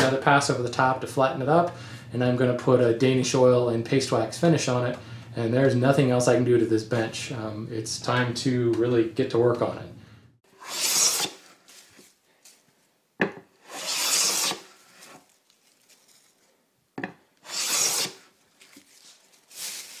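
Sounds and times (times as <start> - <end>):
hand plane shaving wood: 10.6 - 11.4, 13.6 - 15.2, 17.4 - 18.2.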